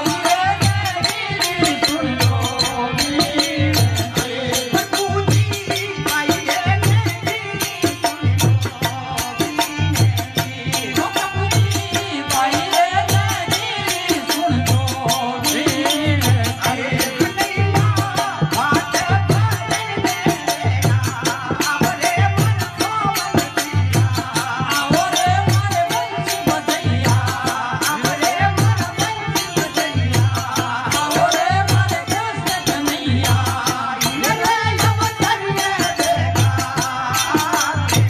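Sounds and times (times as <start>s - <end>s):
man singing: 0.0s - 38.0s.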